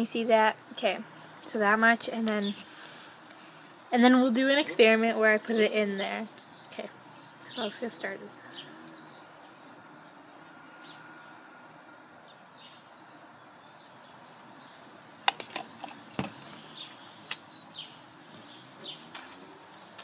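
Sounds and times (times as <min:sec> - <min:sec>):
faint birds chirping: 0:00.0 - 0:20.0
sharp clicks: 0:15.2 - 0:16.6.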